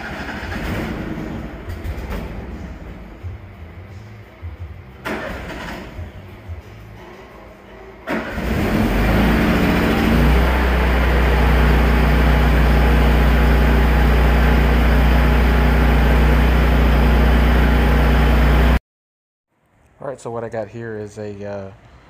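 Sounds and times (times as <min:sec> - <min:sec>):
generator engine starting and running: 0:00.0 - 0:06.8, 0:08.0 - 0:18.8.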